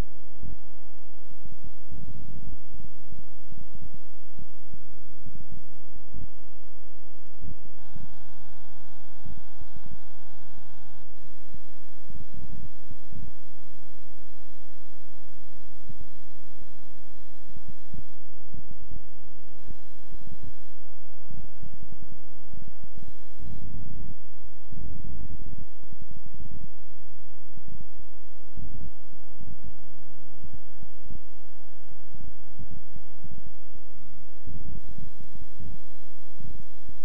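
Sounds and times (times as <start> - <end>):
electrical mains hum: 0.0 - 37.0.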